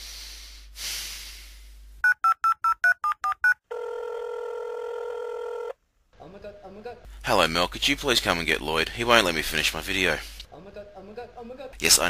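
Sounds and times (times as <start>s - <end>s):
phone ringing tone: 2.0s - 5.7s.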